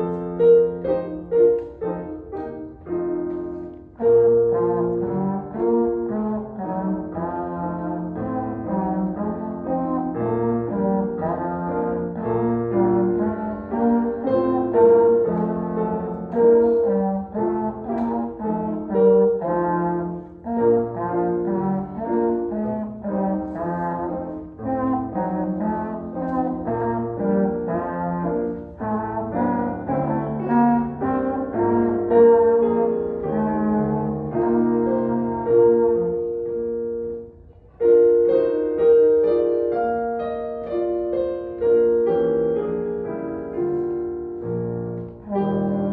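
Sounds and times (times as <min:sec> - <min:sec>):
brass instrument melody: 0:00.0 - 0:45.9
digital piano: 0:00.0 - 0:45.9.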